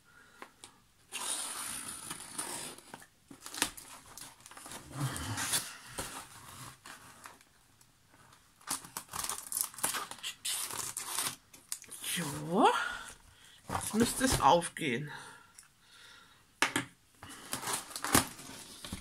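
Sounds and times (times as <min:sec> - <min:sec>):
tool tearing through packing tape: 0:01.1 - 0:03.8, 0:08.7 - 0:11.9
cardboard rustling and sliding: 0:01.4 - 0:07.4, 0:17.3 - 0:19.0.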